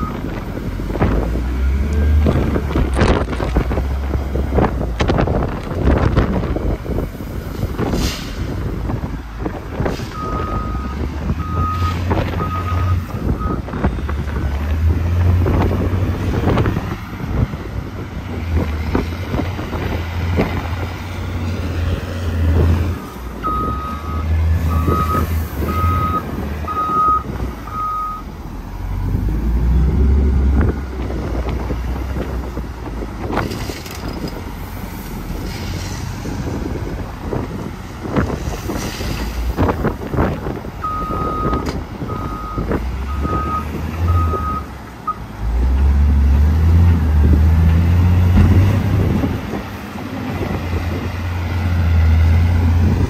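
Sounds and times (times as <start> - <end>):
diesel engine running: 0.0 - 53.0
reversing alarm beeps: 10.2 - 13.6, 23.4 - 28.2, 40.8 - 45.2.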